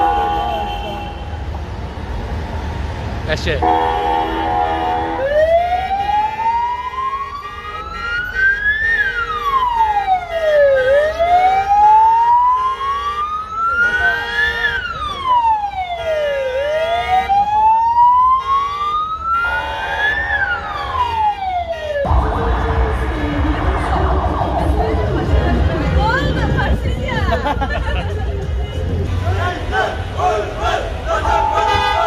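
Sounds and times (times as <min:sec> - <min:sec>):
car horns: 0:00.0 - 0:01.6, 0:03.5 - 0:06.5, 0:07.1 - 0:11.0, 0:12.4 - 0:15.2, 0:15.9 - 0:17.5, 0:18.3 - 0:23.6, 0:29.1 - 0:32.0
siren wailing: 0:05.1 - 0:26.6.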